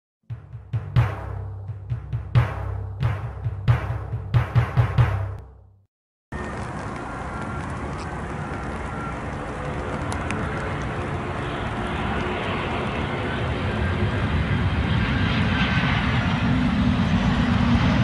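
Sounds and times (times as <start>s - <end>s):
intro music with timpani: 0.3s - 5.6s
faint clicks: 6.4s - 11.2s
jet engines rushing: 6.4s - 18.0s.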